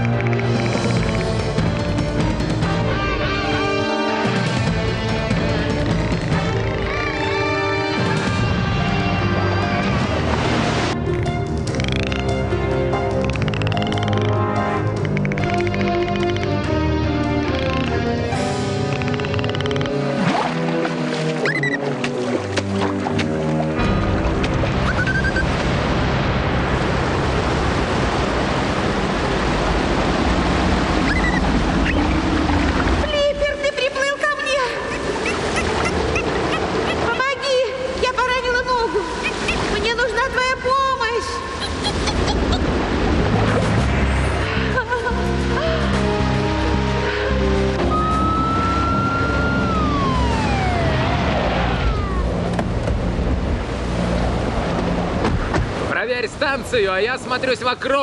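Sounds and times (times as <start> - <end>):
rain: 0.0 - 3.6, 22.7 - 34.0, 35.6 - 58.0
background music: 0.0 - 27.5, 43.4 - 55.3
floodwater rushing: 0.0 - 58.0
storm wind: 34.7 - 56.0
siren winding down: 47.8 - 52.5.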